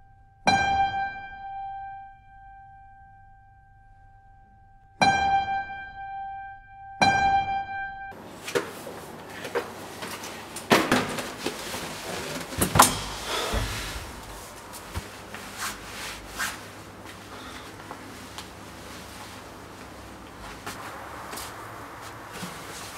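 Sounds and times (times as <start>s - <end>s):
knocks and bumps on lift walls: 10.7s - 15.3s
dull low thud: 12.8s - 15.0s.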